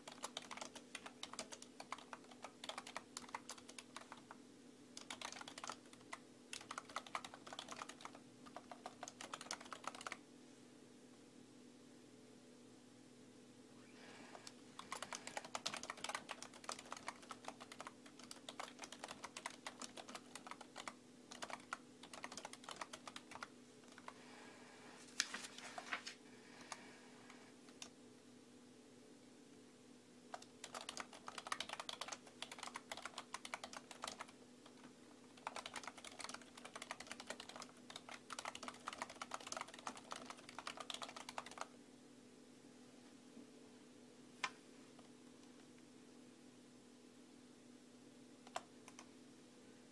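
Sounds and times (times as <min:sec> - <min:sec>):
typing on computer keyboard: 0:00.0 - 0:04.4, 0:05.0 - 0:10.2, 0:14.4 - 0:24.2, 0:30.3 - 0:41.7, 0:48.4 - 0:49.1
faint steady hum: 0:00.0 - 0:49.9.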